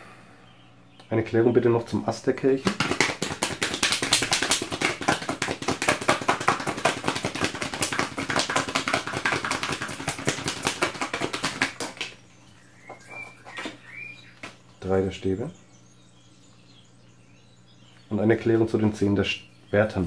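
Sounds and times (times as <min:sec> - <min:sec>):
cards being shuffled: 0:02.6 - 0:12.2.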